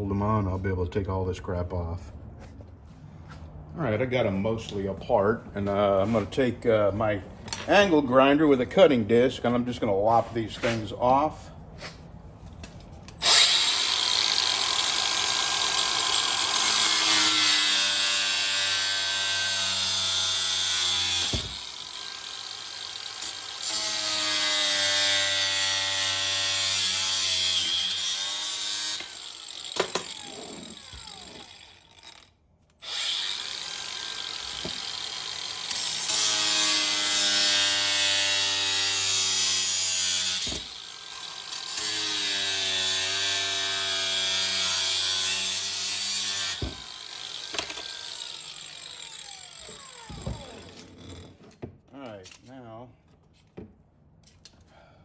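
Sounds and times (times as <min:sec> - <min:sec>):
angle grinder cutting: 0:13.2 - 0:51.4.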